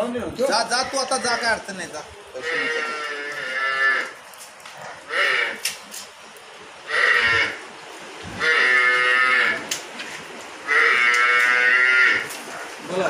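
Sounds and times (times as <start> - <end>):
water buffaloes calling: 0.7 - 1.7, 2.4 - 5.7, 6.8 - 7.6, 8.4 - 9.8, 10.6 - 12.9.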